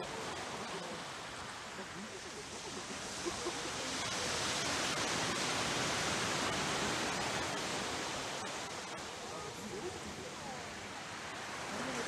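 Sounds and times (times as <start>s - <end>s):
surf washing up beach: 0.0s - 12.0s.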